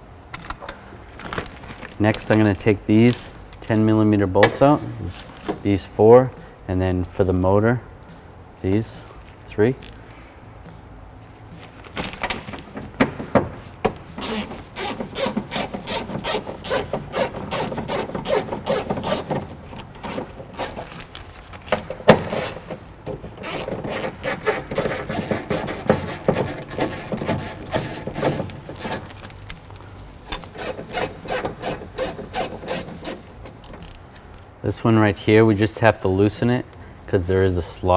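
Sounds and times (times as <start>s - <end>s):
ratchet clicking: 14.2s - 20.9s, 23.4s - 29.3s, 30.3s - 34.4s.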